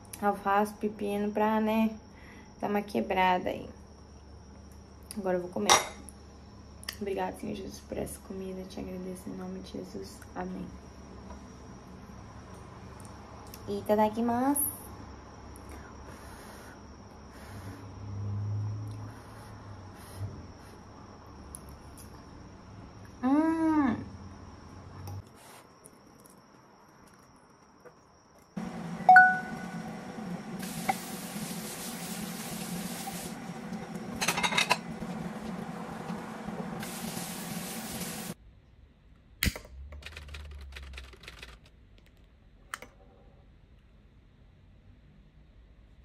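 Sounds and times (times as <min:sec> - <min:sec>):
dishes clinking: 0:34.1 - 0:34.9.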